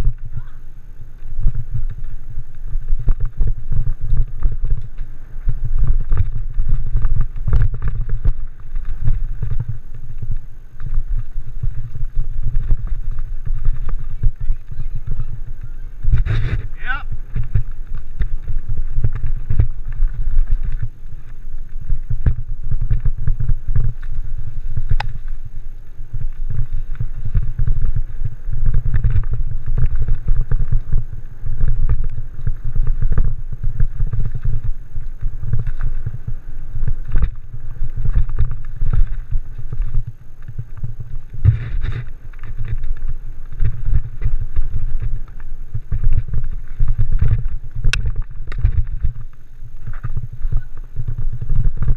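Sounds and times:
wind rumbling on microphone: 0.0s - 51.9s
wheels knocking on bumps: 1.1s - 51.9s
bike frame rattling: 1.6s - 51.9s.

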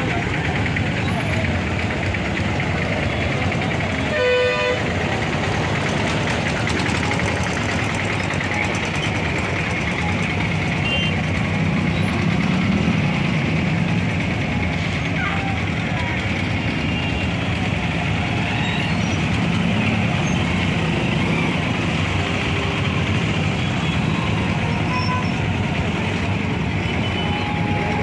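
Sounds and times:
traffic engines idling: 0.0s - 28.0s
vehicle horn toot: 4.1s - 4.8s.

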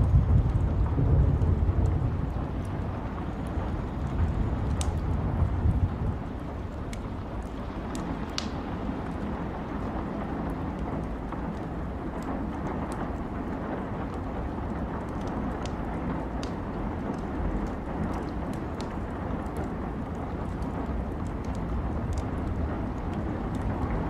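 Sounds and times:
rain: 0.0s - 24.0s
wood fire crackling and popping: 0.0s - 24.0s.

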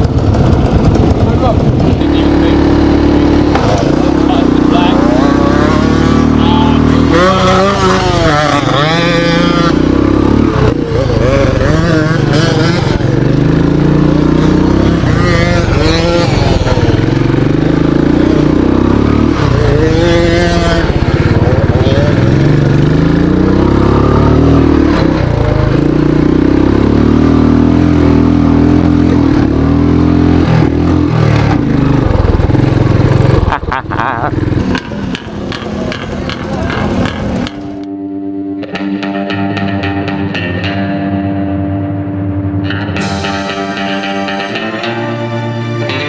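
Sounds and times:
motorcycle engine revving: 0.0s - 46.0s.

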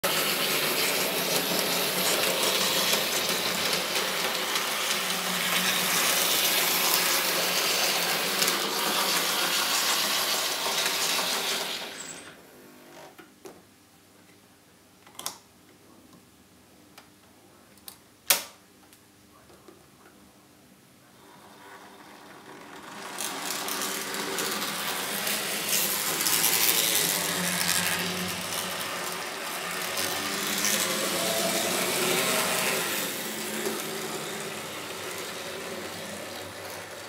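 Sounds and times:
model train rattling whir: 0.0s - 12.4s, 21.2s - 37.0s.

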